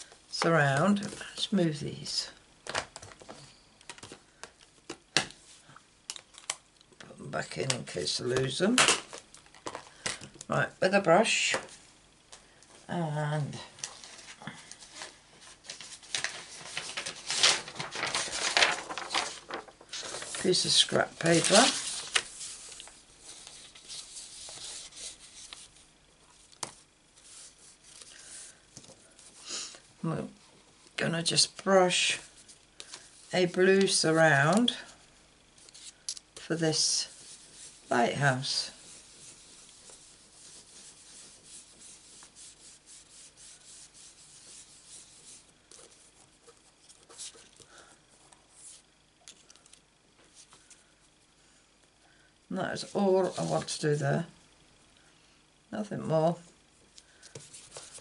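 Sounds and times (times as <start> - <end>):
paper rustling and rubbing: 13.8 - 29.5, 35.6 - 47.9, 48.5 - 50.8, 52.8 - 54.0, 57.1 - 58.0.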